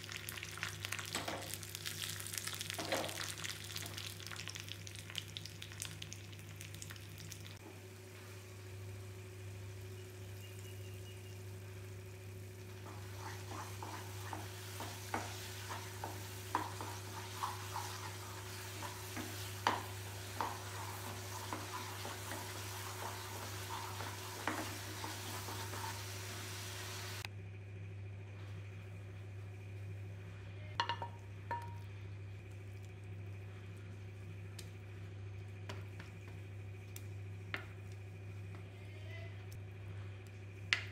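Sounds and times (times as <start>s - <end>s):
nuts sizzling in fat: 0.0s - 27.3s
steady low hum: 4.6s - 40.9s
spatula scraping a pan: 12.8s - 26.3s.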